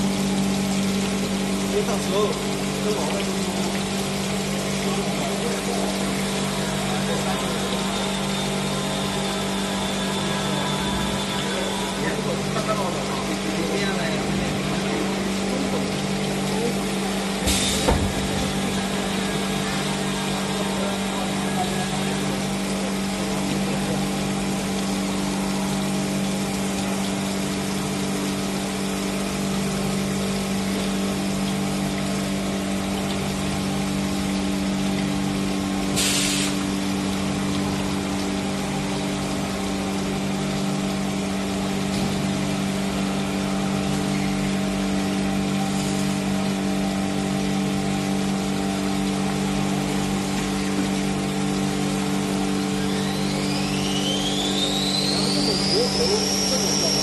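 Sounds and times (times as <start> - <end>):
hiss of spraying water: 16.6 - 22.4, 35.9 - 36.8, 45.6 - 46.2, 52.8 - 57.0.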